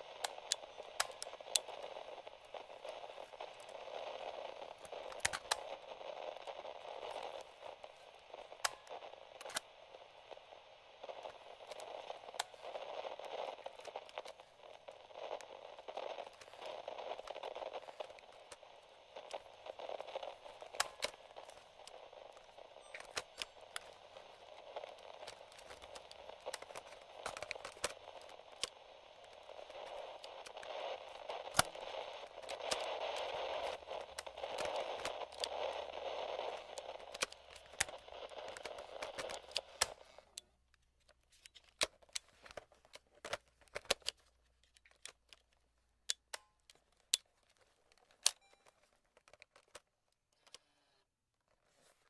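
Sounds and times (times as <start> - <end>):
radio static: 0.0 - 40.3
crackles and pops: 0.0 - 52.0.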